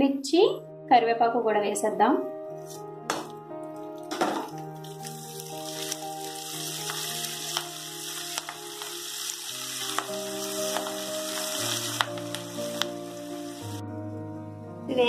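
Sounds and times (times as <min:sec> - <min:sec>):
soft background music: 0:00.0 - 0:15.0
chillies sizzling in hot oil: 0:04.3 - 0:13.8.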